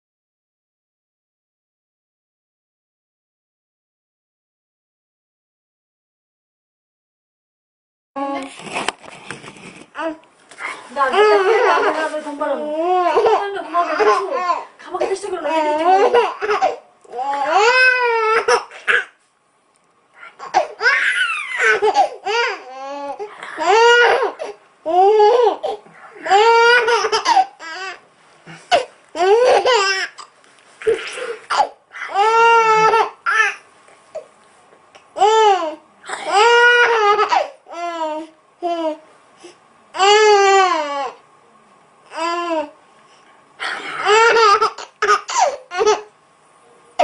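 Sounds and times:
baby laughing and squealing: 0:20.3 - 0:28.0.

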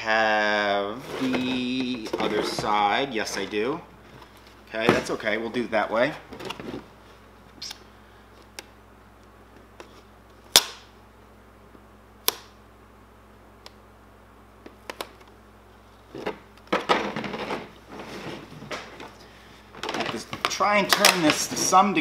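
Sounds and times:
rustling handling noise: 0:15.7 - 0:22.0.

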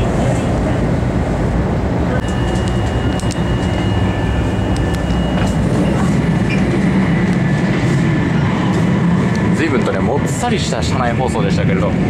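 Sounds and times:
train running rumble: 0:00.0 - 0:12.0
faint high whine: 0:02.2 - 0:06.8.

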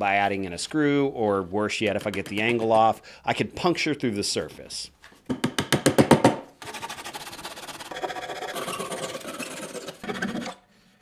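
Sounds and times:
hand saw rasping: 0:06.6 - 0:10.6.

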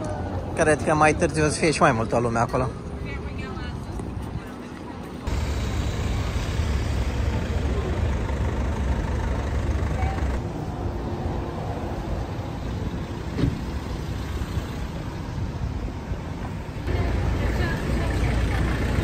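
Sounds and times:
people talking: 0:16.9 - 0:19.0.

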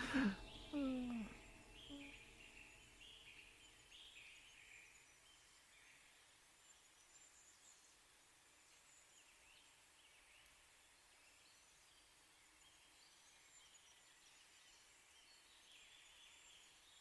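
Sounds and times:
high chirping calls: 0:00.0 - 0:06.1.

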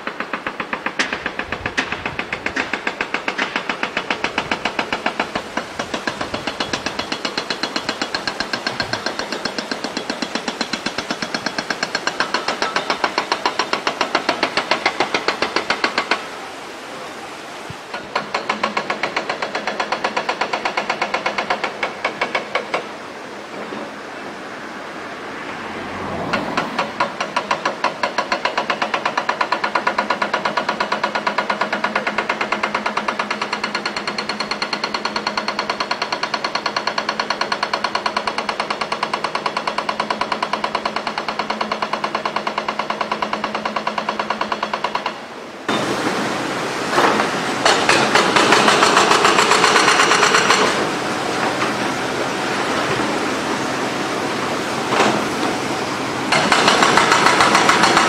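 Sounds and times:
hydraulic rock breaker hammering: 0:00.0 - 0:16.3, 0:17.9 - 0:22.9, 0:26.6 - 0:46.2, 0:46.9 - 0:53.2, 0:56.3 - 0:58.0
rough machinery noise: 0:00.0 - 0:58.0
excavator engine running: 0:45.7 - 0:58.0.

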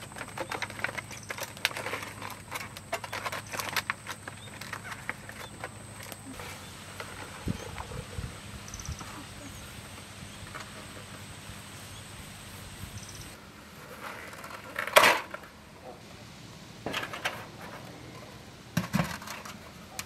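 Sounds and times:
foil rustling: 0:00.0 - 0:07.5.

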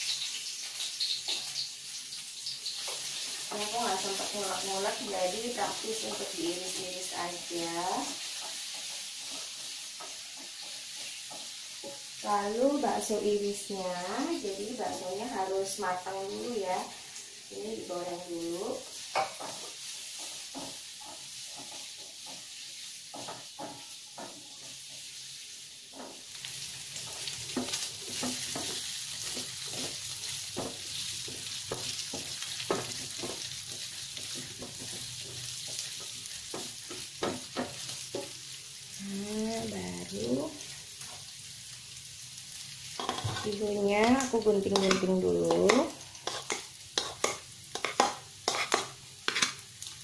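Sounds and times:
meatballs sizzling in oil: 0:00.0 - 0:50.0
spatula knocking against wok: 0:23.1 - 0:24.7, 0:43.0 - 0:49.5.

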